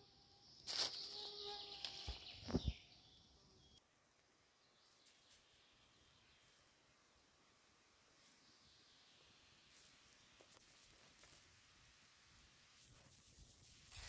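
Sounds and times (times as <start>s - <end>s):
rustling: 0.6s - 2.7s, 9.7s - 11.7s, 12.8s - 14.0s.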